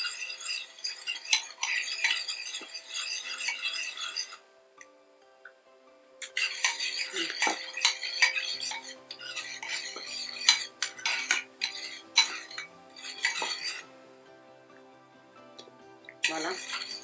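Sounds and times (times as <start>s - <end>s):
metal spoon stirring in ceramic bowl: 0.0s - 4.4s, 6.2s - 13.8s, 16.2s - 17.0s.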